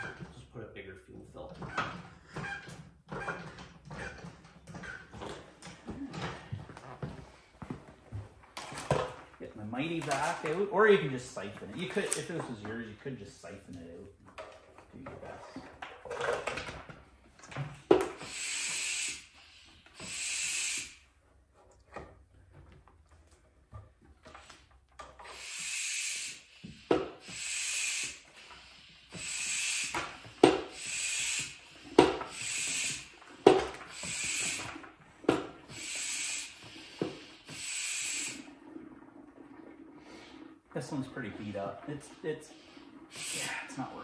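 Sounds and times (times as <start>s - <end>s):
plunger clacking: 8.5s - 19.1s, 26.7s - 44.0s
hand pump hissing strokes: 18.1s - 21.0s, 25.2s - 34.9s, 35.6s - 38.5s, 40.9s - 44.0s.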